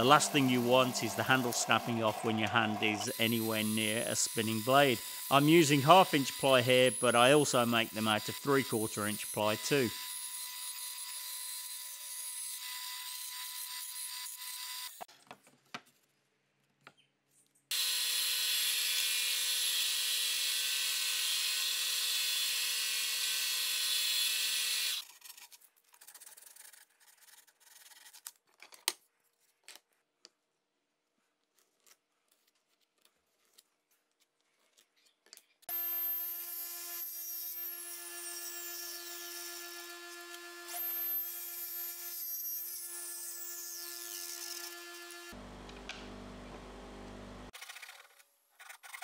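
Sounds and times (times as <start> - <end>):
belt sander running: 0.0 - 9.9, 44.5 - 47.5
band saw cutting plywood: 0.0 - 15.1, 35.7 - 47.6.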